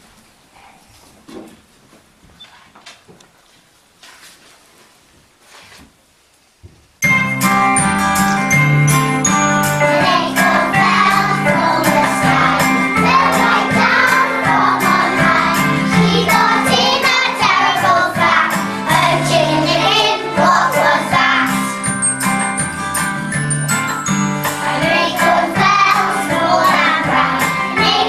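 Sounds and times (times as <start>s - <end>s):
musical accompaniment with steady beat: 7.0s - 28.0s
young children singing: 9.8s - 21.9s, 24.5s - 28.0s.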